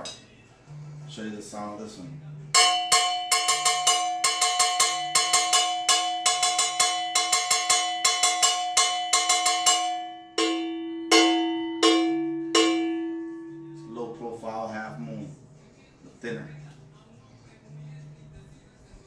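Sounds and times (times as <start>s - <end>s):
cowbell struck with drumstick: 2.6s - 14.2s.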